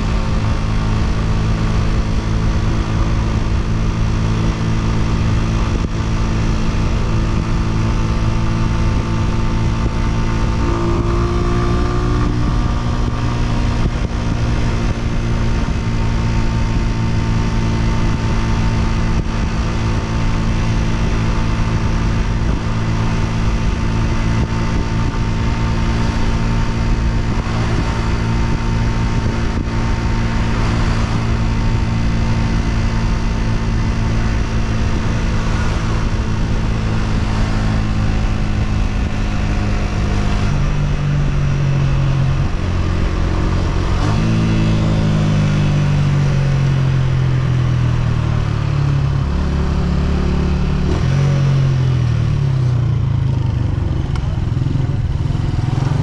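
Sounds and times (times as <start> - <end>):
motorcycle engine running: 0.0 - 56.0
wind rush on microphone: 0.0 - 56.0.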